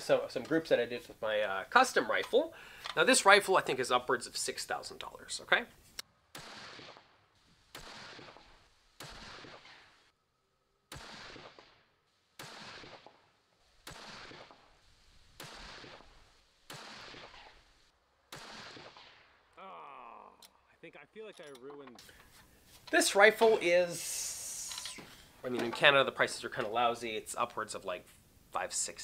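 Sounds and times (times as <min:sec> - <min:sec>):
rifle shots with echo: 0:06.3 - 0:10.1, 0:10.9 - 0:19.4.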